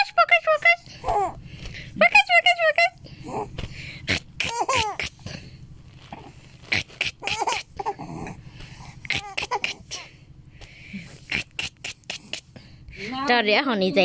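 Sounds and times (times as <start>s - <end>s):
baby cooing and squealing: 4.4s - 5.2s, 6.2s - 8.4s, 9.0s - 10.1s.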